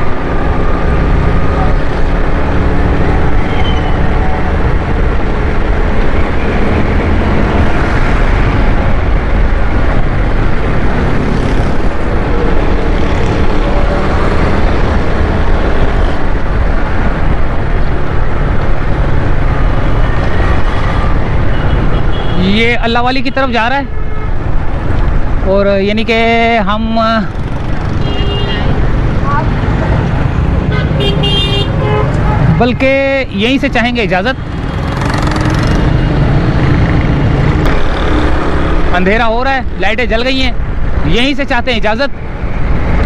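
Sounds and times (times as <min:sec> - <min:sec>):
road traffic: 0:00.0 - 0:43.0
motorcycle engine: 0:27.2 - 0:32.8, 0:34.4 - 0:39.2.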